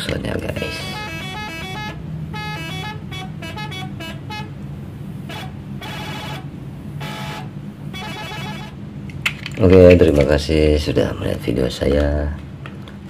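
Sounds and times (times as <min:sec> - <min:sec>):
steady low hum: 0:00.0 - 0:13.0
car horn honks: 0:00.6 - 0:08.9.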